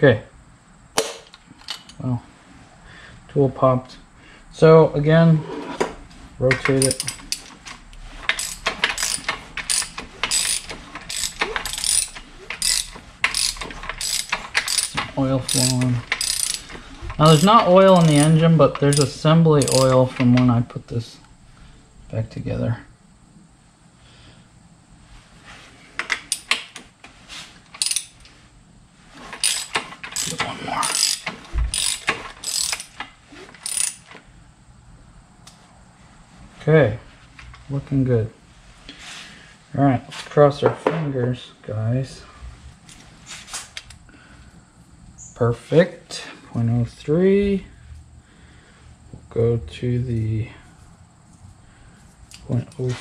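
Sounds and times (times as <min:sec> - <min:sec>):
ratchet wrench clicking: 0:06.6 - 0:07.5, 0:08.3 - 0:20.1, 0:26.0 - 0:26.7, 0:27.7 - 0:28.3, 0:29.4 - 0:34.2.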